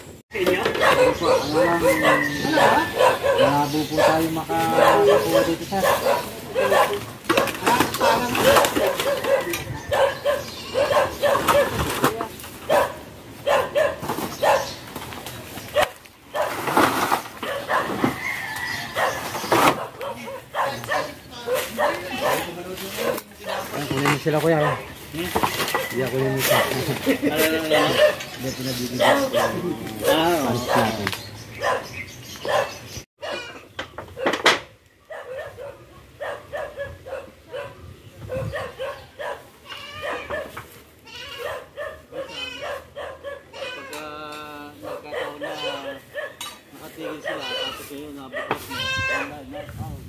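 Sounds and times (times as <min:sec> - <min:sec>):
dog barking: 0:00.6 - 0:11.8, 0:12.7 - 0:14.8, 0:15.7 - 0:16.6, 0:17.4 - 0:18.0, 0:18.9 - 0:23.9, 0:24.6 - 0:24.9, 0:26.5 - 0:26.9, 0:27.7 - 0:28.3, 0:28.9 - 0:31.0, 0:31.6 - 0:33.6, 0:35.1 - 0:40.6, 0:41.4 - 0:43.6, 0:44.8 - 0:47.6, 0:48.2 - 0:48.6
rooster crowing: 0:01.6 - 0:03.5, 0:18.0 - 0:19.4.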